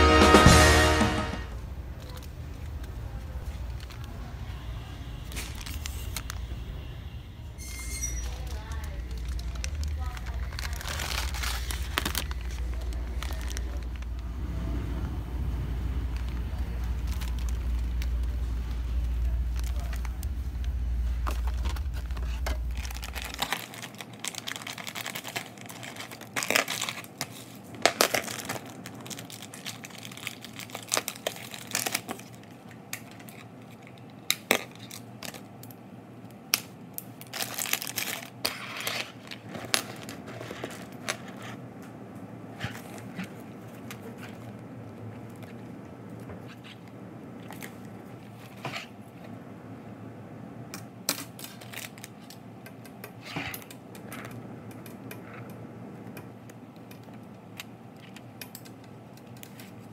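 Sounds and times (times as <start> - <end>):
plastic bag crinkling: 5.2 - 6.6, 7.7 - 14.5, 15.7 - 35.6, 37.0 - 41.8, 42.4 - 49.3, 51.2 - 52.5
low rumble: 8.2 - 24.7.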